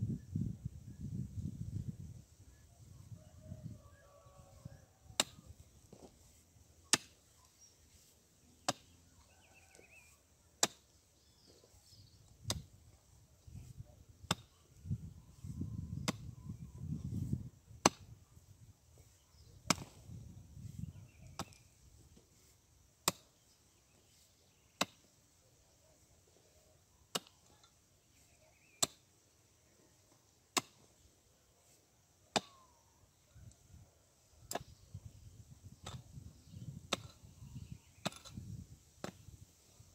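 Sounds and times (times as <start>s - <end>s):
pick striking stony ground: 5.2s - 6.3s, 6.9s - 7.3s, 8.6s - 10.0s, 10.6s - 10.9s, 14.2s - 14.6s, 19.4s - 20.2s, 23.0s - 23.4s, 27.1s - 27.7s, 30.6s - 30.9s, 32.3s - 32.6s, 34.5s - 34.9s, 36.8s - 37.2s, 38.0s - 39.2s.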